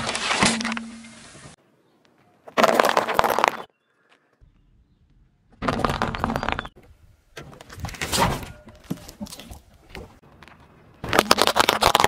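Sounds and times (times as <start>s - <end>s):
tyre rolling over marbles: 2.5s - 3.7s
tyre crushing candy tablets: 11.0s - 12.0s.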